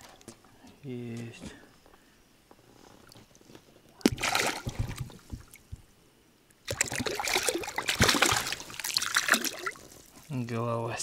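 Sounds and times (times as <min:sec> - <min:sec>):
fish splashing in water: 0:04.0 - 0:05.2, 0:06.6 - 0:09.9.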